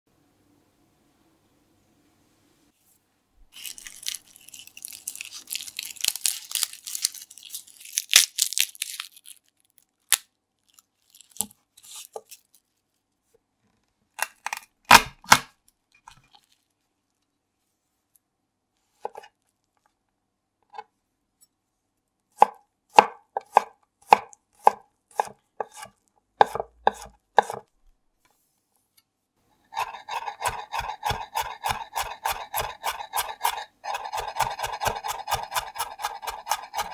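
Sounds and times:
garlic skin crackling: 3.5 - 12.8
fast chopping: 22.4 - 27.6, 29.7 - 36.9
knife strikes on wooden board: 22.4 - 27.6.

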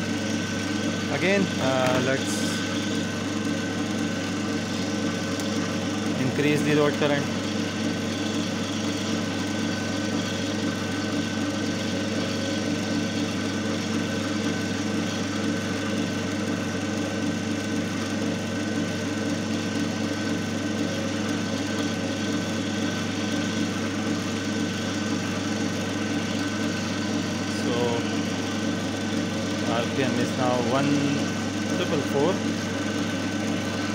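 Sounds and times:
electric motor hum: 0.0 - 33.9.

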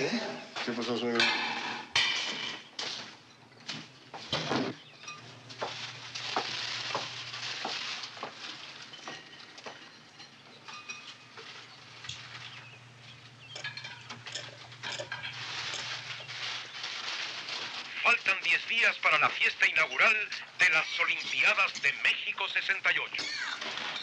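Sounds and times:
static hiss: 15.3 - 23.2.

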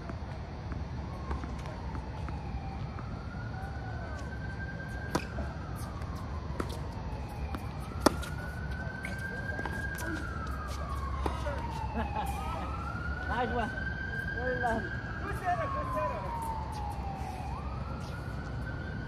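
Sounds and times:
faint siren wailing: 0.0 - 19.0
tennis ball bouncing on court: 5.1 - 5.5, 7.5 - 10.0
racket striking ball: 5.1 - 5.9, 7.5 - 8.5.

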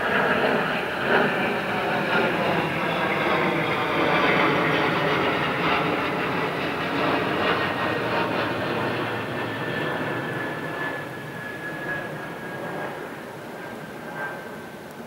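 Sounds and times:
distant engine drone: 0.0 - 15.0.

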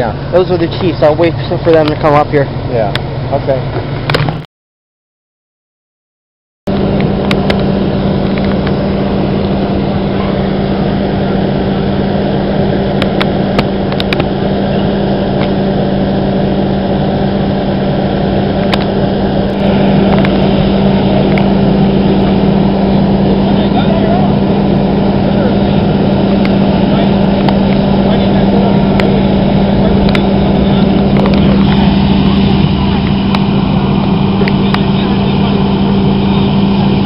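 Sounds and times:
fire engine pump droning: 0.0 - 4.4, 6.7 - 37.0.

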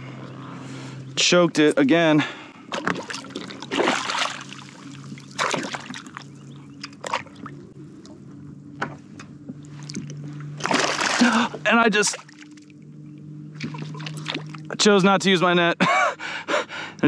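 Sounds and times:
steady low hum: 0.0 - 17.0
fish thrashing at surface: 2.7 - 6.3, 10.6 - 12.6, 13.6 - 14.7
water splashing against kayak: 2.7 - 6.4, 10.6 - 12.6, 13.6 - 14.7.

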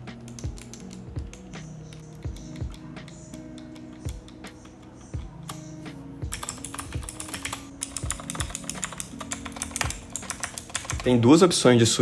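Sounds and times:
soft background music beat: 0.0 - 12.0
mechanical keyboard typing: 0.2 - 2.9, 6.3 - 11.3.

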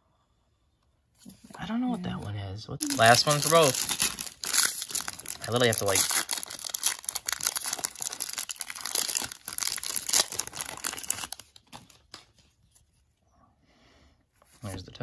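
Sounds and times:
foil wrapper tearing and crinkling: 2.8 - 12.2.

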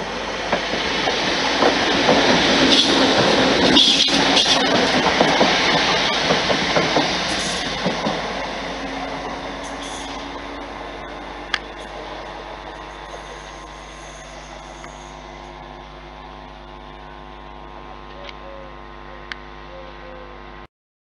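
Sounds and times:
passenger train moving away: 0.0 - 19.1
camcorder zoom electrical buzz: 12.8 - 15.9.

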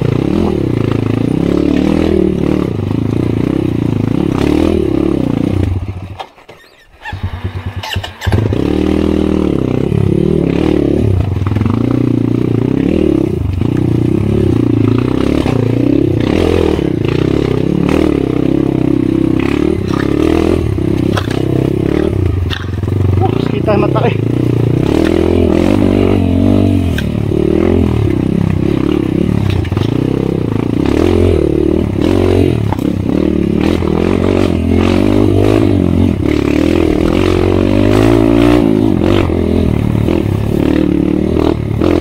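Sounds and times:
dirt bike engine revving: 0.0 - 42.0
knocks from rough ground: 20.9 - 21.5.

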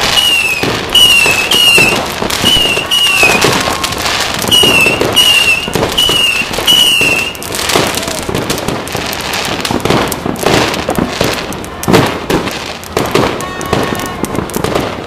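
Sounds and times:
fireworks banging and crackling: 0.0 - 15.0
high falling whistle tone: 4.6 - 7.4.

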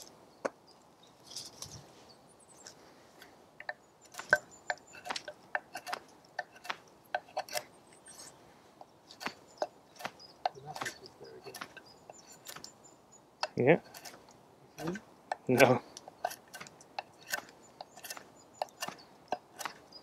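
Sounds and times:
knife shaving wood: 15.6 - 19.9.

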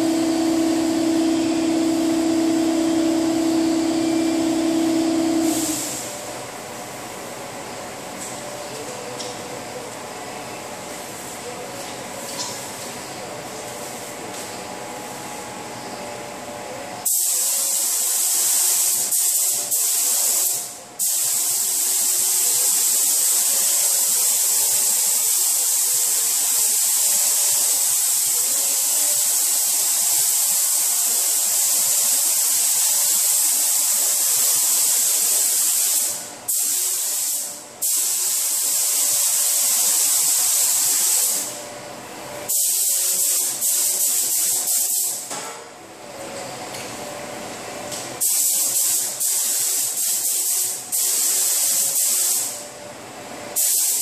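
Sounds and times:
paint spray gun hissing: 0.0 - 6.1, 17.0 - 41.5, 42.5 - 45.2, 48.2 - 52.6, 53.6 - 54.0.

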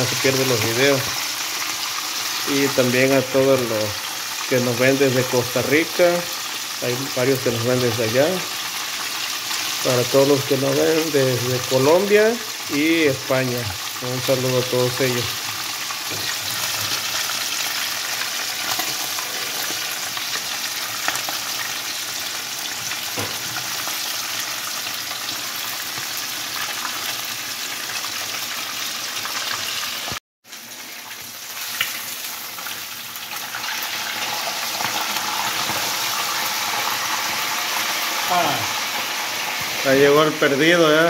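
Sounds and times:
fish sizzling in hot oil: 0.0 - 41.0.

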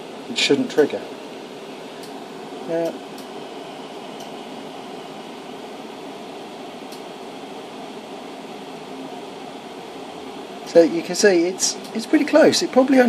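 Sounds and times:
fan-like background hiss: 0.0 - 13.0.

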